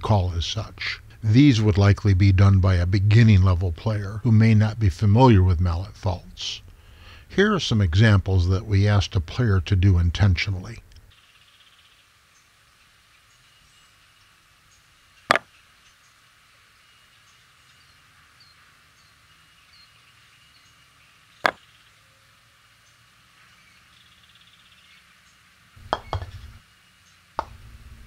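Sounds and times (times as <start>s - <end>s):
croquet mallet hitting ball: 25.8s - 26.4s, 27.4s - 27.6s.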